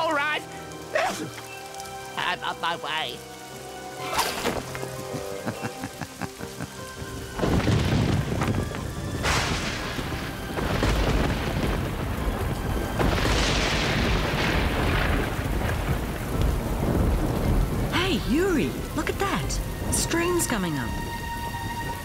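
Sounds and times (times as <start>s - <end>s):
background music: 0.0s - 22.0s
heavy rain: 0.0s - 22.0s
thunder cracking and rumbling: 7.1s - 22.0s.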